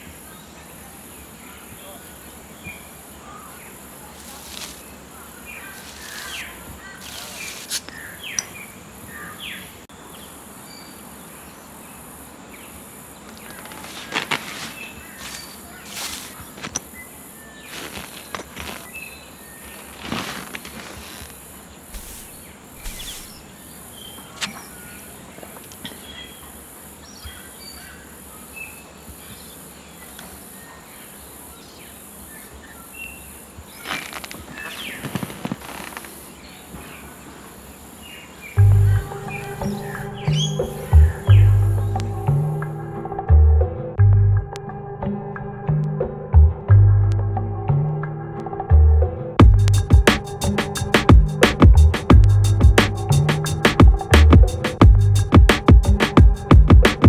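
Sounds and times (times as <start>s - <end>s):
birds chirping: 0.0s - 44.0s
pulsing insect buzz: 3.8s - 8.4s, 12.8s - 23.7s.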